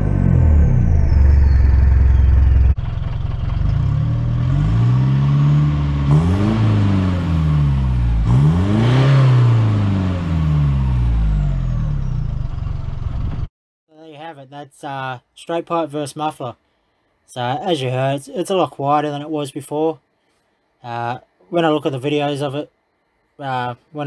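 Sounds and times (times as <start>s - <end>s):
diesel engine revving: 0.0s - 13.5s.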